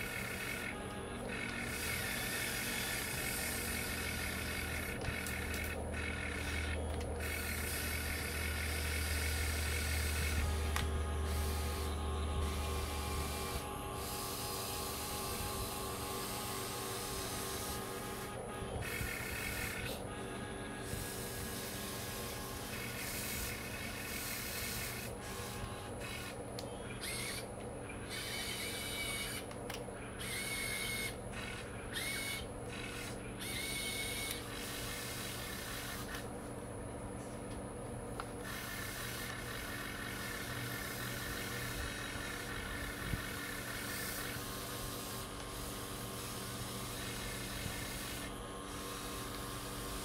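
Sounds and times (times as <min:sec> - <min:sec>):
toy excavator motors whirring: 0:00.0 - 0:36.4, 0:38.1 - 0:50.0.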